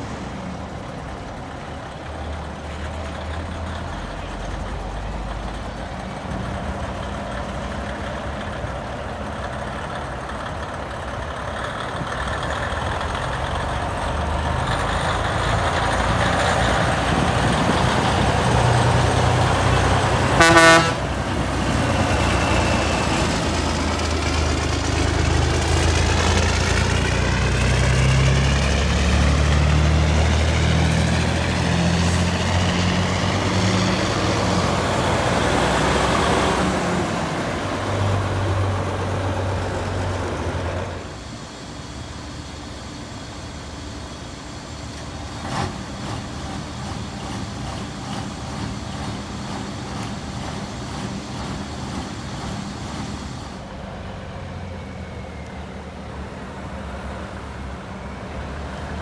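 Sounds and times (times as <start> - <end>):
diesel engine idling: 0.0 - 59.0
diesel truck engines accelerating: 0.0 - 59.0.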